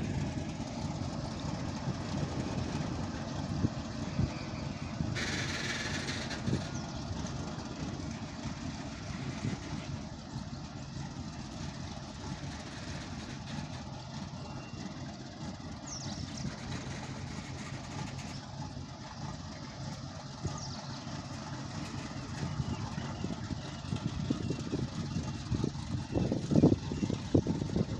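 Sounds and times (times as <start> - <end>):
distant diesel locomotive engine: 0.0 - 27.9
train wheels rumbling on rail: 0.0 - 27.9
high squeals: 4.0 - 7.0.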